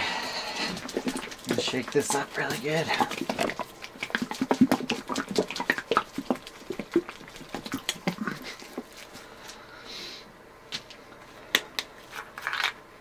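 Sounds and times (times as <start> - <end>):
plastic bottle shaken sloshing: 0.6 - 9.2.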